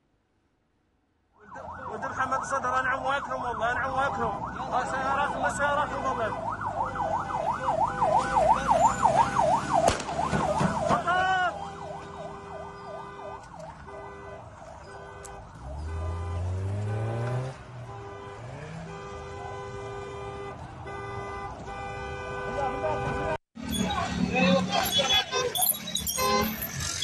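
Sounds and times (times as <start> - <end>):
siren wailing in rapid sweeps: 6.0 - 14.0.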